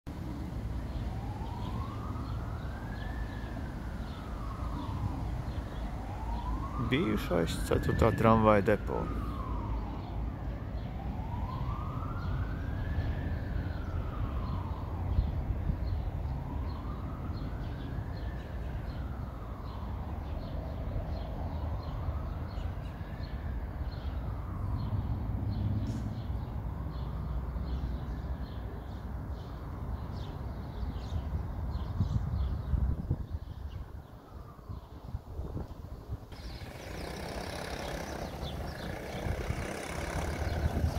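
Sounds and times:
siren wailing: 1.0s - 15.3s, 36.3s - 40.9s
small birds chirping: 36.3s - 40.9s.

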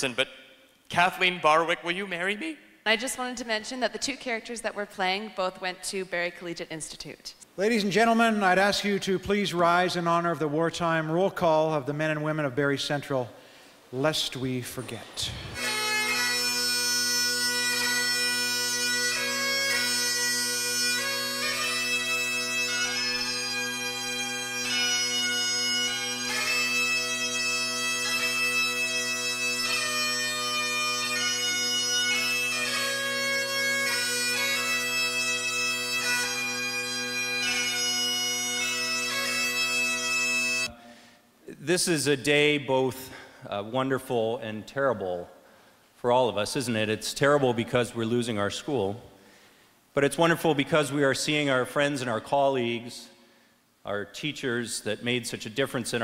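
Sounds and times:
bagpipes playing: 15.2s - 41.1s.

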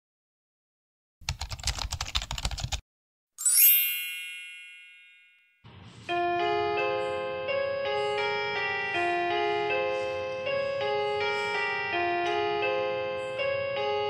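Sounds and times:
keyboard typing clicks: 1.3s - 2.8s
bright shimmering chime: 3.4s - 5.6s
electronic keyboard notes: 6.1s - 14.0s.

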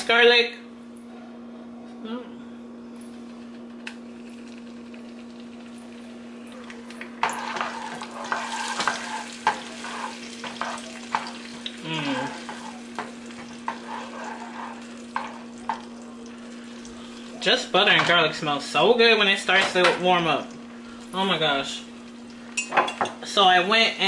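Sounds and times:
garlic sizzling in a frying pan: 3.9s - 24.0s
utensil scraping a pan: 7.2s - 11.6s, 12.2s - 15.8s.

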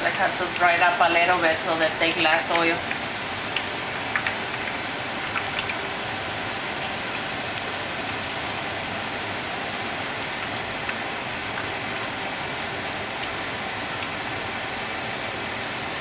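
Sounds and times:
oil crackles: 0.0s - 8.5s
dough sizzling in hot oil: 0.0s - 16.0s.

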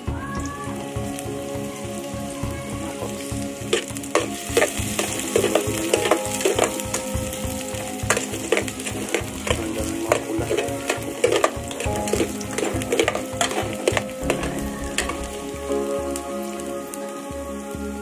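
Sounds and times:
garlic and onion sizzling in oil: 0.0s - 18.0s
spoon scraping pot: 8.1s - 15.2s.

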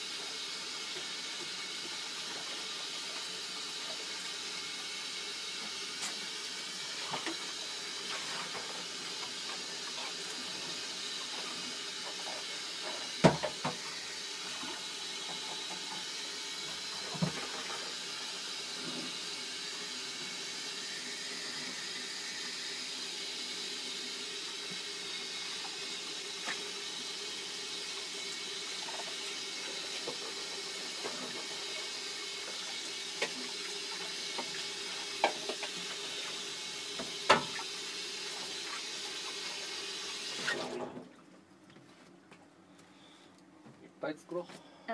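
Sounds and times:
tap running into sink: 8.1s - 18.0s, 28.8s - 36.4s, 37.0s - 37.7s.

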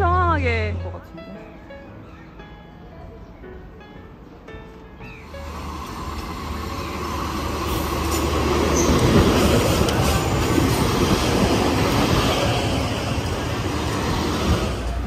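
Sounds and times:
train wheels running on rails: 5.3s - 15.0s.

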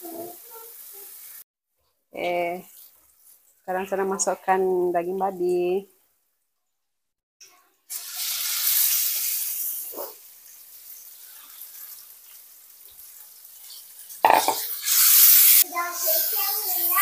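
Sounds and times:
meat sizzling in hot oil: 0.0s - 1.5s, 2.4s - 4.3s, 7.8s - 17.0s.

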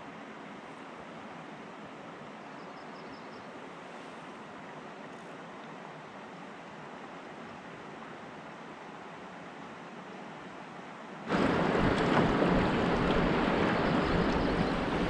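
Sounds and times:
outdoor rushing noise: 11.3s - 15.0s.

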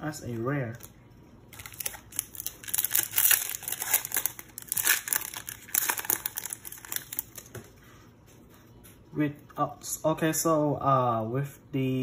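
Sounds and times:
foil wrapper crinkling and tearing: 1.5s - 7.5s.

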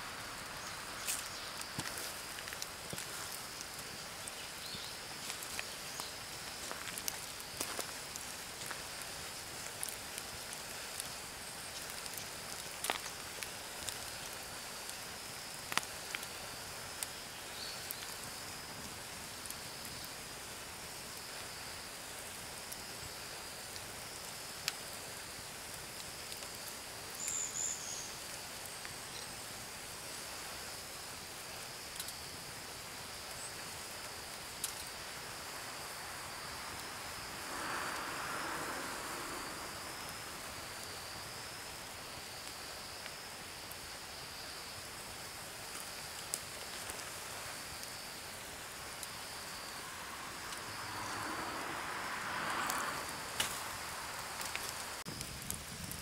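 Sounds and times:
insects chirring: 0.0s - 56.0s.

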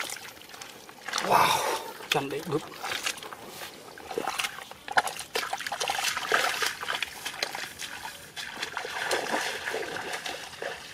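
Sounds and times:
bare feet splashing in muddy water: 0.0s - 10.9s.

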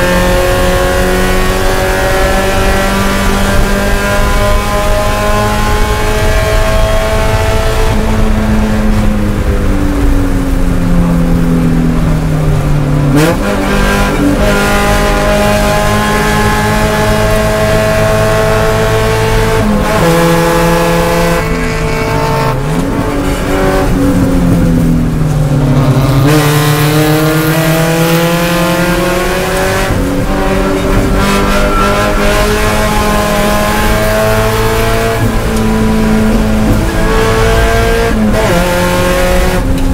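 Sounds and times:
car engine at high revs: 0.0s - 39.9s.

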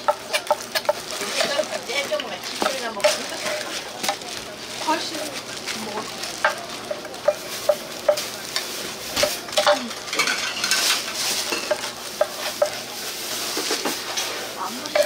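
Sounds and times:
food sizzling: 0.0s - 15.0s
metal spatulas clinking on griddle: 6.4s - 12.8s.

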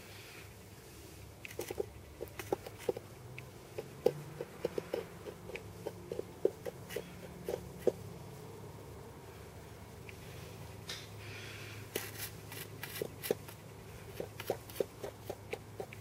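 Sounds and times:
plastic spoon scraping and clicking: 1.4s - 8.0s, 11.9s - 16.0s.

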